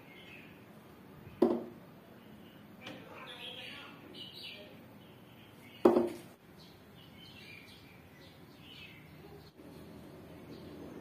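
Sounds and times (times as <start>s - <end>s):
sharp knock: 5.8s - 6.2s.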